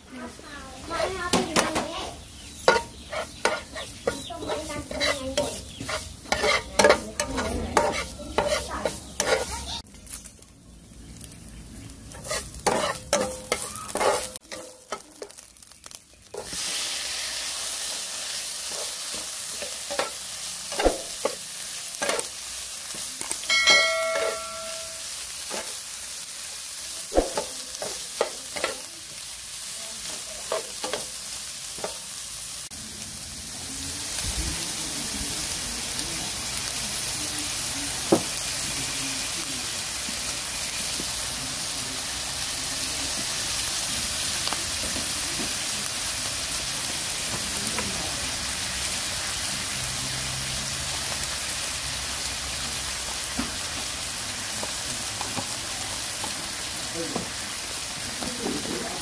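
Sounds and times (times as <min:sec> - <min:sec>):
food sizzling in a pan: 0:00.0 - 0:59.0
spatula scraping a wok: 0:02.6 - 0:09.9, 0:12.0 - 0:15.5, 0:16.3 - 0:25.9, 0:27.2 - 0:28.9, 0:29.6 - 0:32.1.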